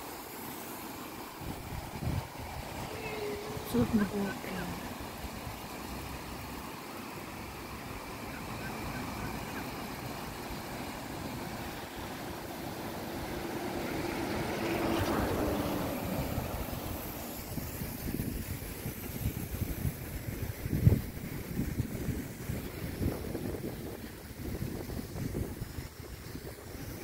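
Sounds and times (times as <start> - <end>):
outdoor noise: 0.0 - 19.6
vehicle passing: 11.6 - 17.4.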